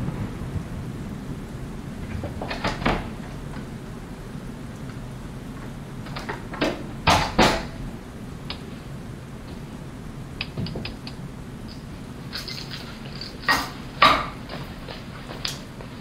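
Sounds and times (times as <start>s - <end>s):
low rumble: 0.0s - 6.0s
knocks: 6.6s - 7.8s.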